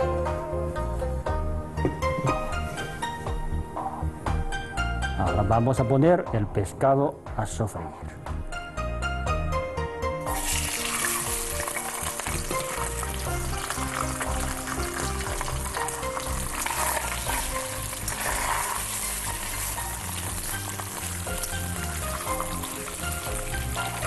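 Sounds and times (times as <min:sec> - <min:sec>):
soft background music: 0:00.0 - 0:24.0
fish sizzling in hot oil: 0:10.3 - 0:24.0.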